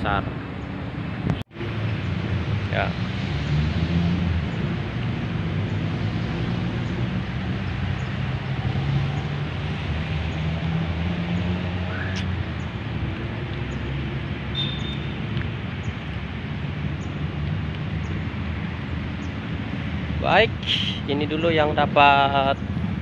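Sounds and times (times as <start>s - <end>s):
engine rumble: 0.0s - 23.0s
road traffic hum: 0.0s - 23.0s.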